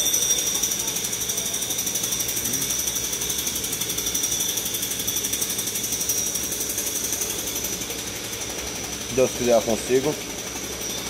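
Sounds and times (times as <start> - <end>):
high-pitched whine: 0.0 - 3.5
rapid mechanical rattle: 0.0 - 11.0.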